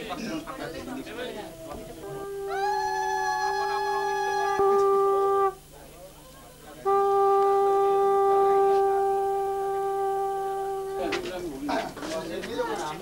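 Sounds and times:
conch shell blown: 1.6s - 5.7s, 6.7s - 11.5s.

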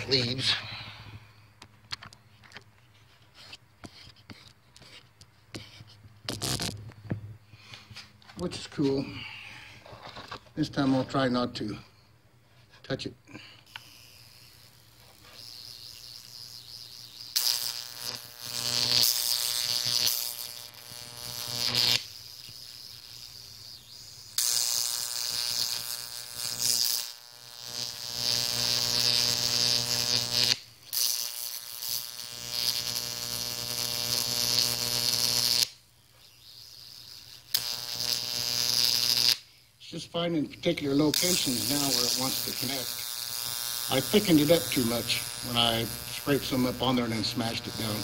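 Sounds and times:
electric arc buzzing and crackling: 0.0s - 0.7s, 6.2s - 7.0s, 13.3s - 48.0s.

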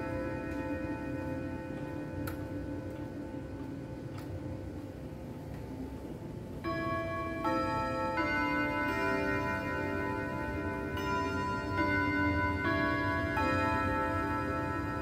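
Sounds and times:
clock chime melody: 0.0s - 5.2s, 6.6s - 15.0s.

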